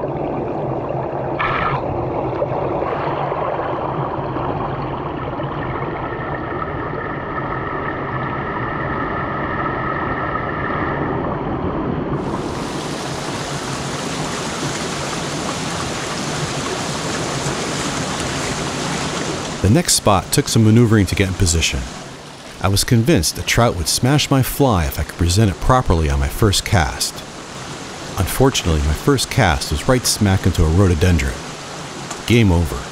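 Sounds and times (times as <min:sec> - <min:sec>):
stream rushing over rocks: 0:12.2 - 0:32.9.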